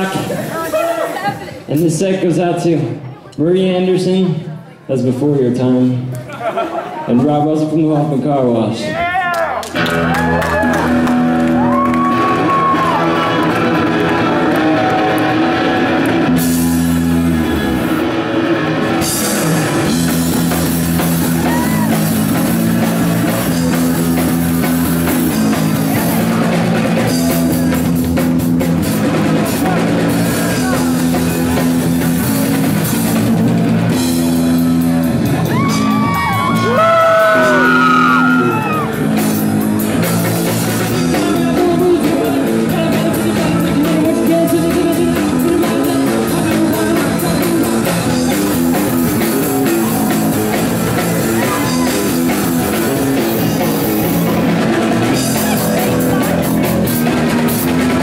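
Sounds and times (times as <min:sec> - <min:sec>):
punk rock band playing: 0:00.0 - 0:04.2, 0:09.6 - 0:58.0
bending high guitar notes: 0:09.8 - 0:41.2, 0:48.0 - 0:58.0
person singing: 0:40.8 - 0:58.0.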